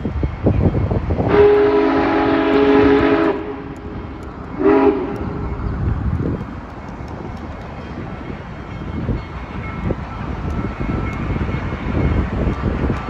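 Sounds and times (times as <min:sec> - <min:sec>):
train horn blasts: 0:01.2 - 0:05.7.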